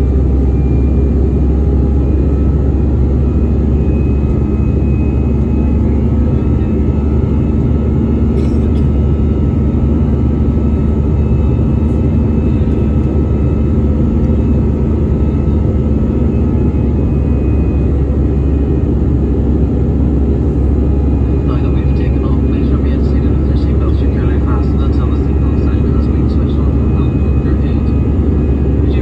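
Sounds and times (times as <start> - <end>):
jet engines low rumble: 0.0 - 29.0
faint steady tones: 9.8 - 29.0.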